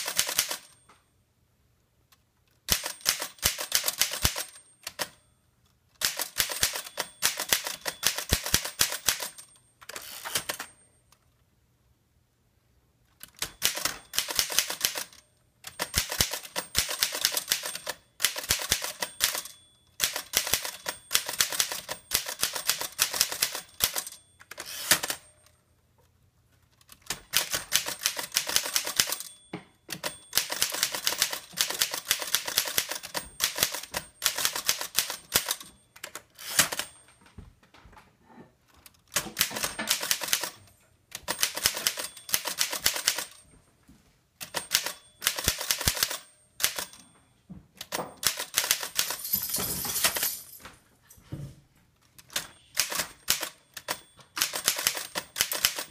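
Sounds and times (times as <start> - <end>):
manual typewriter keystrokes: 0.0 - 0.9, 2.6 - 5.2, 6.0 - 10.9, 13.1 - 25.6, 26.7 - 37.2, 38.8 - 43.4, 44.4 - 47.1, 47.8 - 49.4, 52.1 - 55.9.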